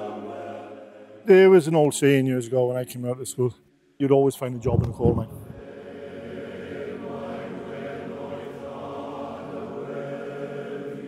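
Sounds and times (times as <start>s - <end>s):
choir singing sustained chords: 0.0s - 1.6s, 5.4s - 11.0s.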